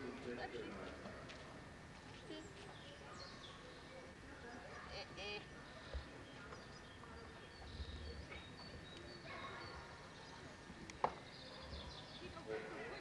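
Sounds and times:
distant voices: 0.0 - 13.0.

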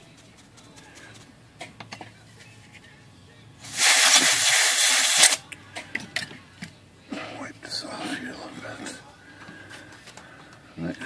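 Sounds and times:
aerosol spray can hissing: 3.7 - 5.4.

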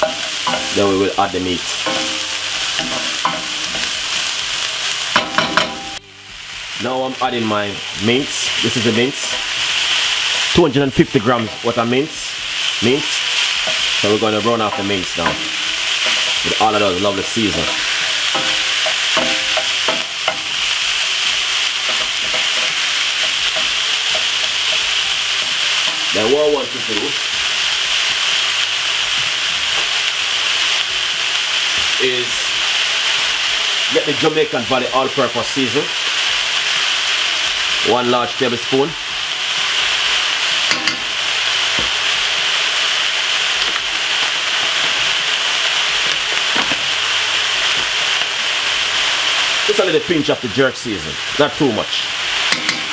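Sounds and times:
meat sizzling in a frying pan: 0.0 - 52.9
wooden spoon scraping a pan: 11.2 - 26.3.

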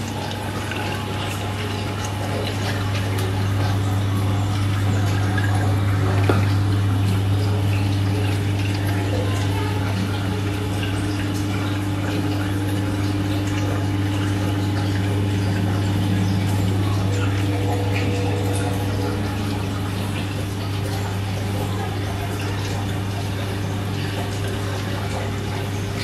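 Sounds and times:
running splashing water: 0.0 - 26.0
water pump humming: 0.0 - 26.0.

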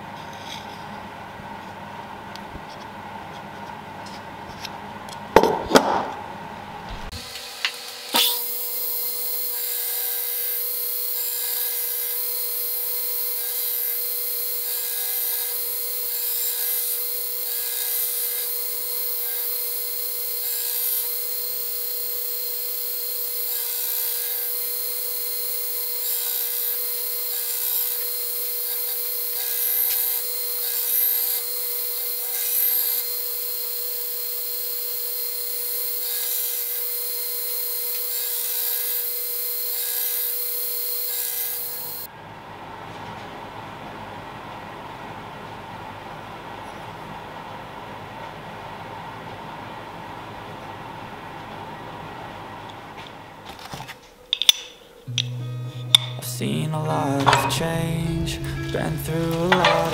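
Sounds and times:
belt grinder grinding steel blade: 7.2 - 42.1, 57.0 - 59.9.

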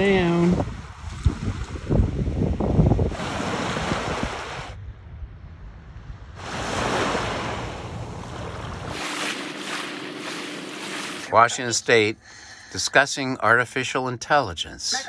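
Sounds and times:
wind buffeting microphone: 0.0 - 9.0
small waves washing on beach: 3.1 - 4.8, 6.4 - 11.6.

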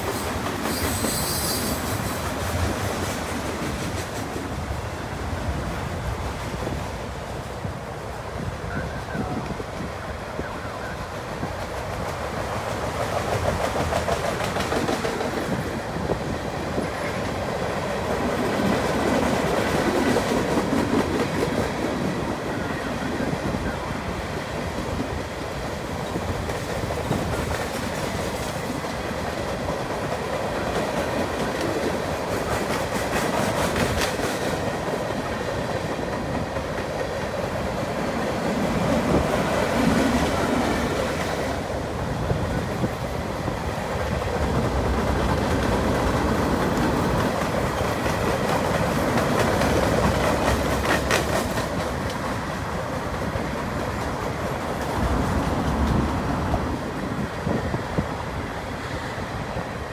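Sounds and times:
train wheels rolling on rail: 0.0 - 59.9
wheels clicking over rail joints: 11.4 - 22.6, 24.5 - 57.7.

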